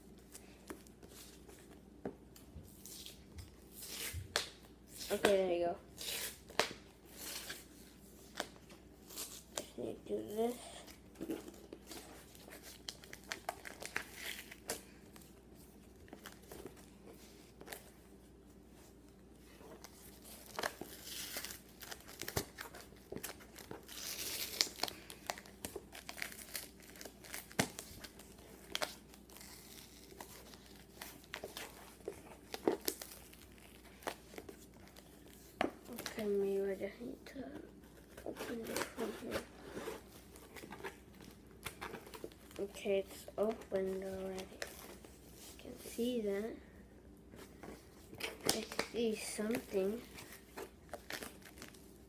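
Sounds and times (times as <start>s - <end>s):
packaging crinkling and tearing: 11.3s - 15.2s, 19.8s - 36.2s, 48.1s - 52.0s.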